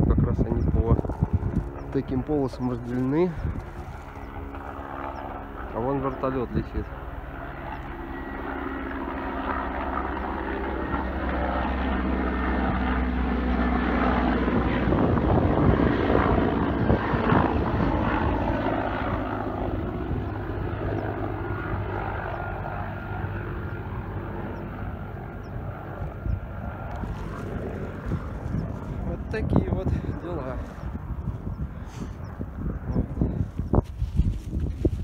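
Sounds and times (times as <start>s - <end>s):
helicopter flying overhead: 0.0s - 35.0s.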